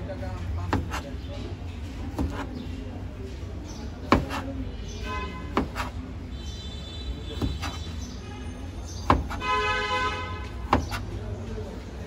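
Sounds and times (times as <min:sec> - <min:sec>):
low street hum: 0:00.0 - 0:12.0
knife tapping on plastic cutting board: 0:04.1 - 0:04.4, 0:09.0 - 0:09.4.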